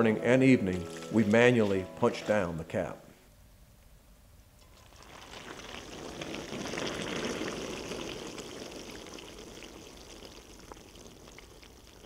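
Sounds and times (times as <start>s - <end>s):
grape must fizzing and crackling: 4.6s - 12.0s.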